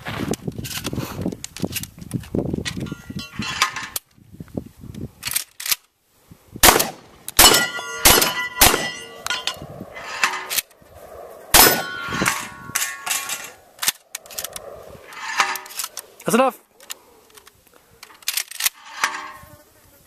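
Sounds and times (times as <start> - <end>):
steel plates clanging: 2.8 - 4.0, 7.4 - 10.7, 11.6 - 14.4, 15.0 - 16.4, 18.1 - 19.5
shotgun shots: 6.6 - 9.3, 11.5 - 13.5.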